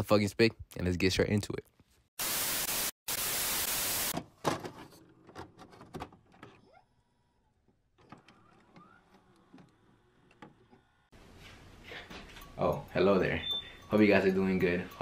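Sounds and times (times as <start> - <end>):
tv static hiss: 2.2 - 4.1.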